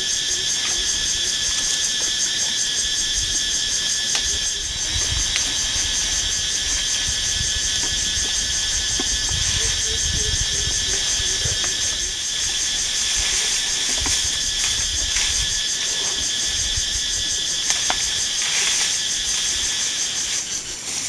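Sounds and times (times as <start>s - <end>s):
night insects trilling: 0.0s - 21.0s
low microphone rumbling: 4.2s - 17.4s.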